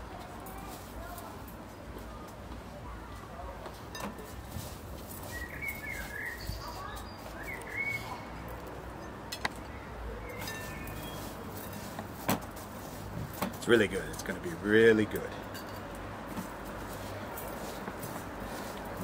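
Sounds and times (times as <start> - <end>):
small birds chirping: 5.0 - 11.8.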